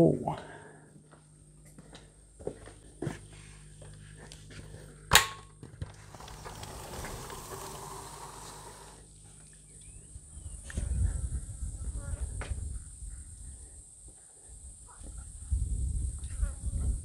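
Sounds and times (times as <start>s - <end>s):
footsteps on tiled floor: 1.0s - 4.9s.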